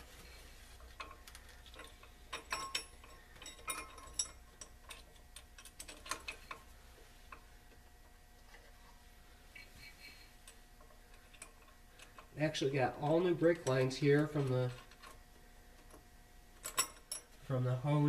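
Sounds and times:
metal clinks: 0:00.9 - 0:06.6, 0:16.6 - 0:17.4.

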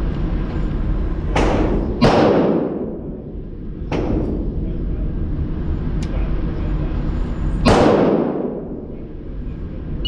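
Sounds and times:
gunshots echoing indoors: 0:01.4 - 0:03.2, 0:07.6 - 0:08.9.

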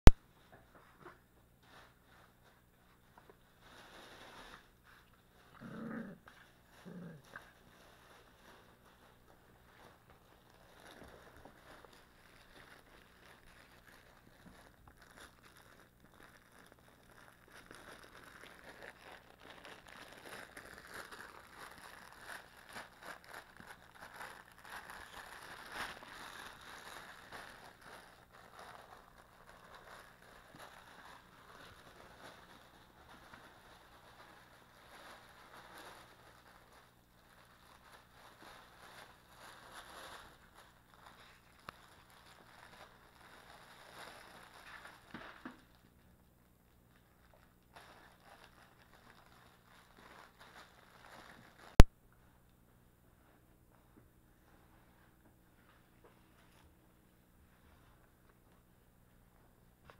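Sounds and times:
small crackles: 0:00.0 - 0:52.6
plush toys being chewed: 0:04.1 - 0:45.7.

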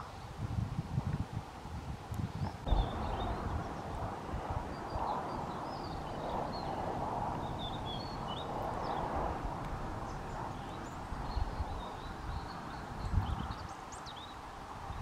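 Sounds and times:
steady rushing noise: 0:00.0 - 0:15.0
small birds chirping: 0:02.3 - 0:15.0
low rumbling: 0:02.6 - 0:13.6.

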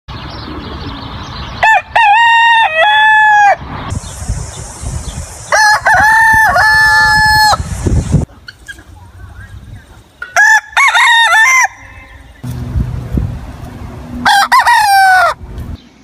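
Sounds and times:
rooster crowing: 0:01.6 - 0:03.6, 0:05.5 - 0:07.6, 0:10.4 - 0:12.3, 0:14.2 - 0:15.4.

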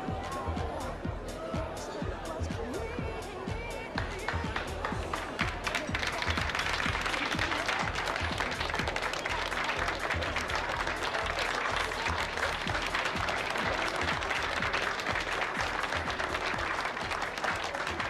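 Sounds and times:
dance music with steady beat: 0:00.0 - 0:18.0
crowd applauding: 0:04.0 - 0:18.0.

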